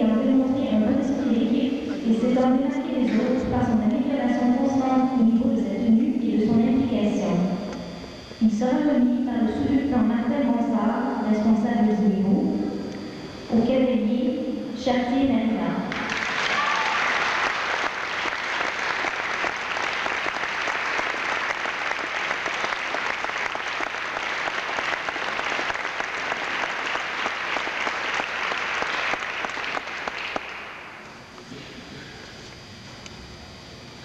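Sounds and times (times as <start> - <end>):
audience applauding: 15.9 - 30.8.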